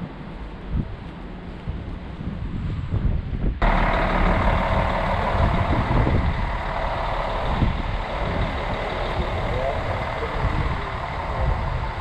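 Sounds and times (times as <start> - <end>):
vehicle engine running: 3.6 - 12.0.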